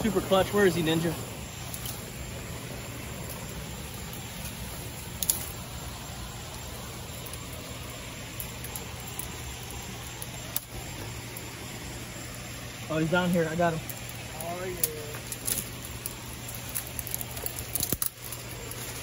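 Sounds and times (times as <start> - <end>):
shrub leaves rustling: 0.0 - 19.0
steady low hum: 0.0 - 19.0
branches snapping: 1.5 - 2.1, 4.1 - 5.6, 13.8 - 19.0.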